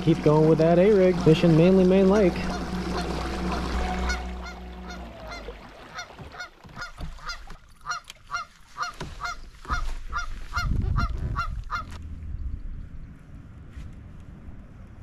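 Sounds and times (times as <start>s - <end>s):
geese honking: 2.2s - 12.0s
low rumble: 10.7s - 15.0s.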